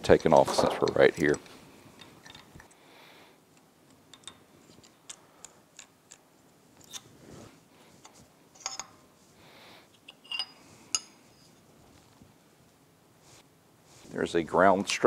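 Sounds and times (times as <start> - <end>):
ringing metal clinks: 10.2 - 11.1.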